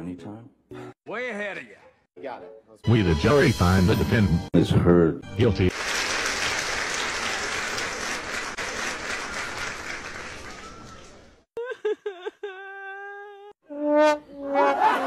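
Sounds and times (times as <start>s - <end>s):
crowd applauding: 5.7s - 11.4s.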